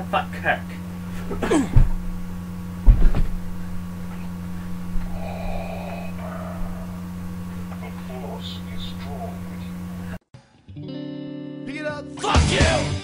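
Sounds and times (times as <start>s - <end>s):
low electrical hum: 0.0s - 10.2s
dull thumps against webcam: 1.2s - 5.1s
faint breathy noise: 4.2s - 10.2s.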